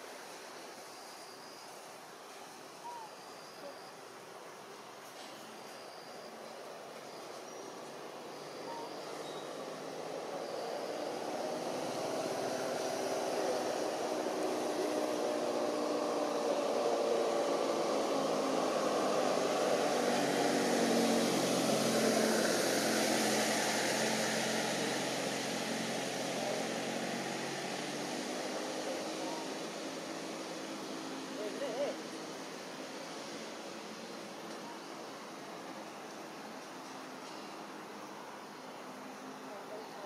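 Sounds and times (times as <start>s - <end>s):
aircraft engine drone: 5.8s - 34.5s.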